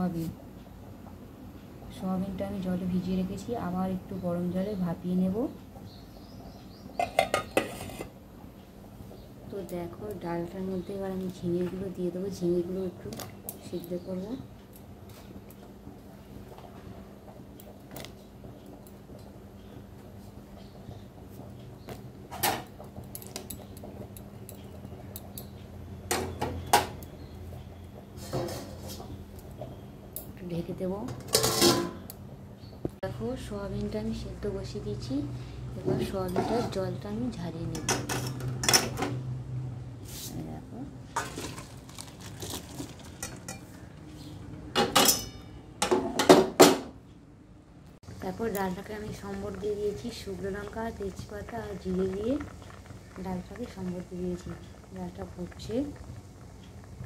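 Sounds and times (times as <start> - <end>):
low steady hum: 0.0 - 57.0
metal utensils clinking on pan: 31.2 - 32.0, 44.8 - 46.4.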